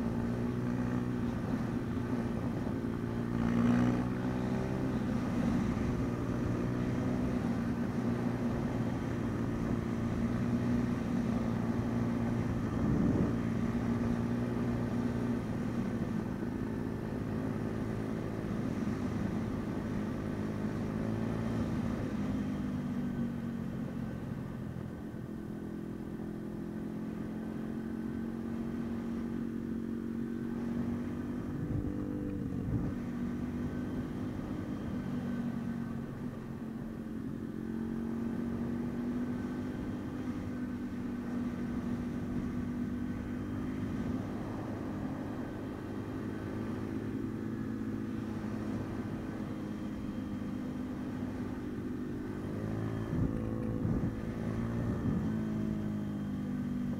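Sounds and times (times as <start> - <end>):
motorbike engine running: 23.1 - 56.9.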